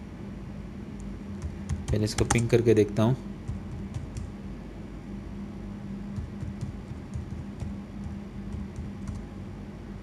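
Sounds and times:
steady low hum: 0:00.0 - 0:10.0
keyboard typing: 0:01.3 - 0:02.5, 0:03.4 - 0:04.3, 0:06.2 - 0:09.3.

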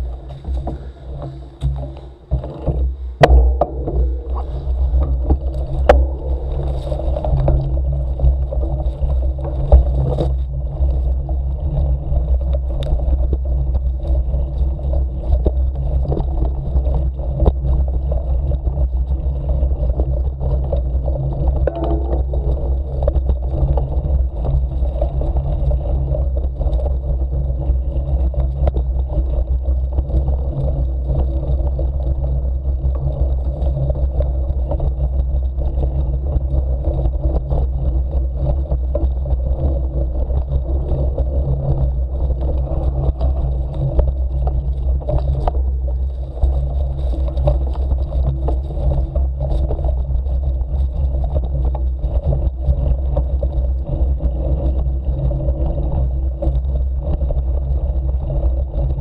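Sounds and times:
knocks and rattles over bumps: 0:00.0 - 0:11.3, 0:20.6 - 0:25.6
bike tyres rolling on dirt: 0:00.0 - 0:59.0
wind rumble on camera: 0:00.0 - 0:59.0.

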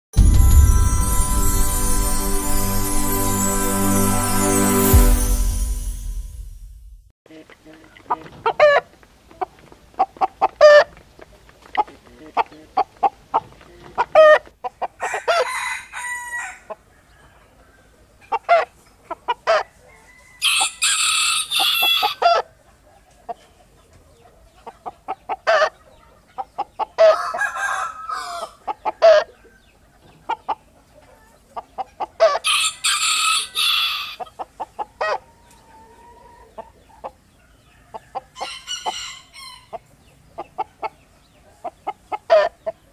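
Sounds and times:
hens clucking: 0:07.3 - 0:15.5, 0:16.7 - 0:20.2, 0:21.4 - 0:32.4, 0:33.8 - 0:42.9
rooster crowing: 0:15.0 - 0:17.9, 0:19.8 - 0:22.4, 0:27.0 - 0:29.5, 0:32.4 - 0:34.4, 0:35.0 - 0:36.6, 0:37.5 - 0:39.8.

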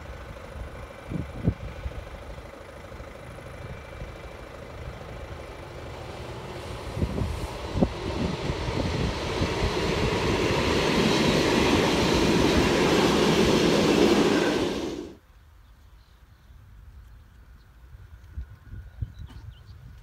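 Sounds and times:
train wheels rumbling on rails: 0:00.0 - 0:15.2.

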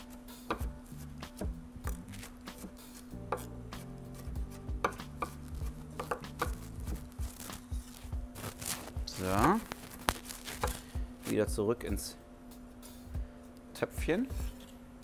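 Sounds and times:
knife chopping on wooden board: 0:00.4 - 0:07.5, 0:10.5 - 0:10.8.

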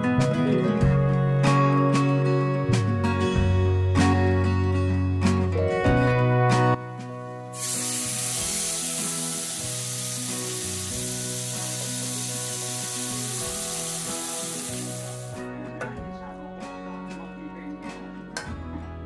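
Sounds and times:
acoustic guitar music: 0:00.0 - 0:19.0
steak sizzling in a pan: 0:07.5 - 0:15.4.

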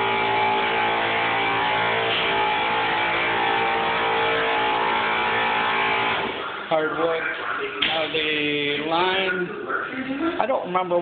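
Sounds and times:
electric motor humming: 0:00.0 - 0:06.5.

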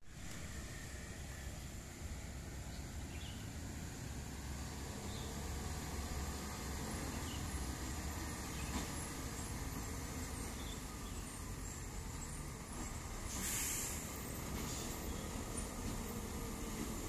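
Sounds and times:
diesel truck engine rumble: 0:00.1 - 0:17.0.

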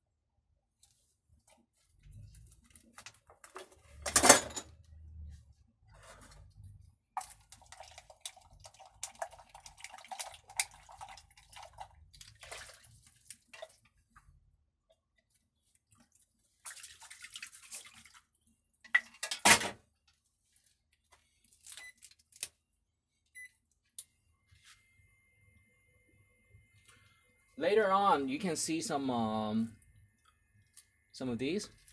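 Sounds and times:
liquid swishing in a wok: 0:06.0 - 0:14.0.

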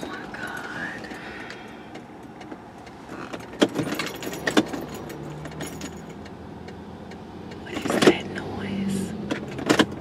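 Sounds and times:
car keys jangling: 0:00.0 - 0:06.4.

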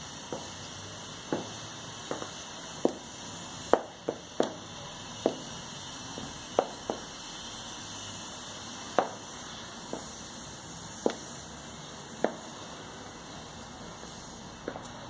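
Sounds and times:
high heels clicking on tile floor: 0:00.3 - 0:00.6, 0:01.3 - 0:03.0, 0:03.7 - 0:04.6, 0:05.2 - 0:05.4, 0:06.2 - 0:07.1.

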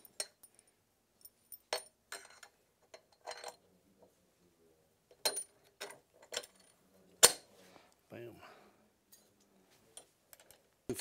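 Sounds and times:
metal parts clinking and knocking: 0:01.2 - 0:03.6, 0:05.1 - 0:07.5.

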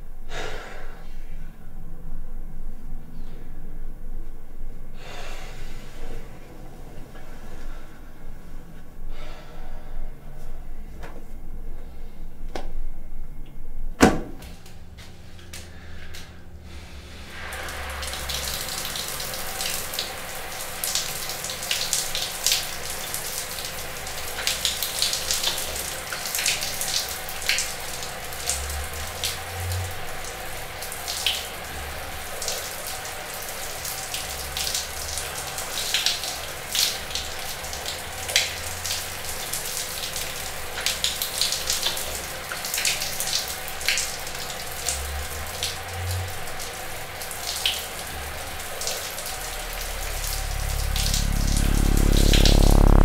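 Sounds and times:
shower spray on tiled floor: 0:15.2 - 0:53.0.

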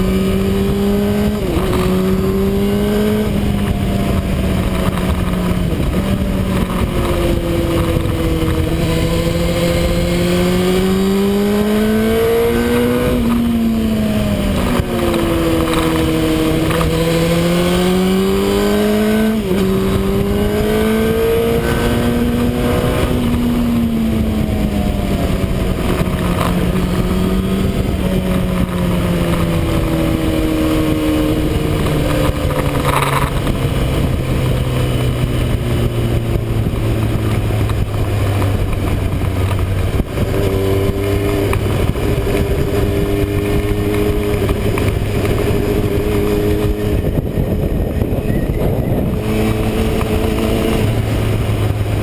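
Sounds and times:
motorcycle engine running: 0:00.0 - 0:52.0
wind rushing on microphone: 0:00.0 - 0:52.0.

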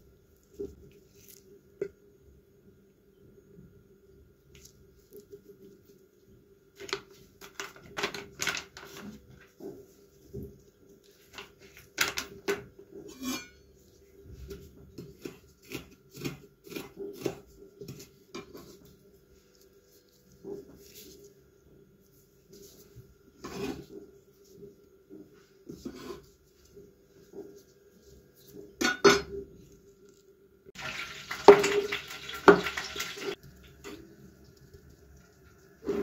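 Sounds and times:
knife scraping ceramic plate: 0:13.1 - 0:13.7, 0:23.4 - 0:23.9.

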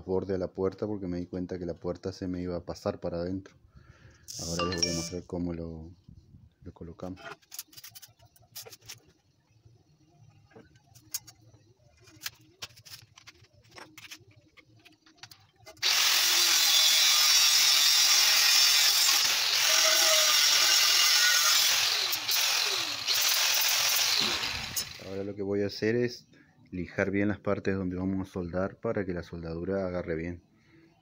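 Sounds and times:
angle grinder cutting steel: 0:15.8 - 0:25.2.

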